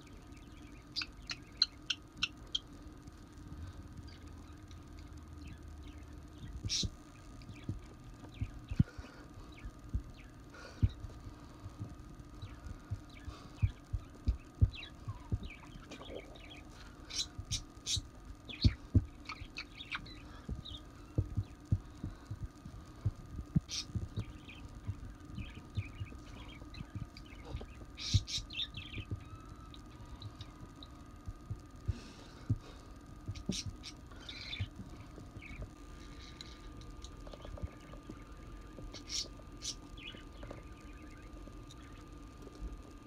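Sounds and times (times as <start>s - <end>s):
parrot chirping: 0.4s - 2.7s, 17.1s - 20.8s, 23.7s - 31.0s, 38.9s - 40.3s.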